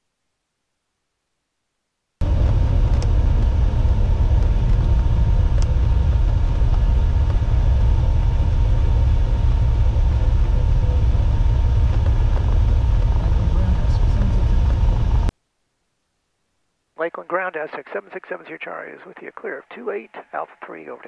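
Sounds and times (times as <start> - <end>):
airplane engines droning: 2.2 - 15.3.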